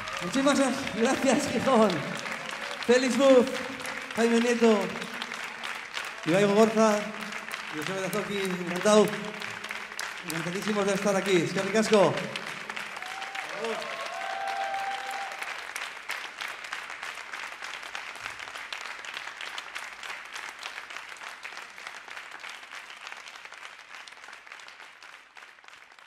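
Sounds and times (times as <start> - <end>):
audience applauding: 0.0 - 26.0.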